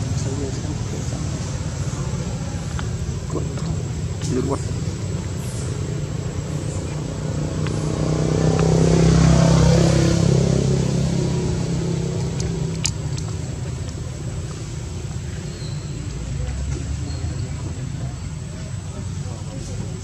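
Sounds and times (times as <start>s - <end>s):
vehicle passing by: 0.0s - 15.0s.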